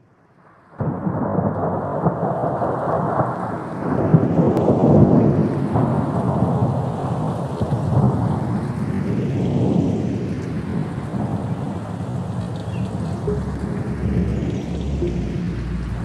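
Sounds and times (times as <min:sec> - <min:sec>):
rain: 0:00.2 - 0:16.0
rolling thunder: 0:00.8 - 0:16.0.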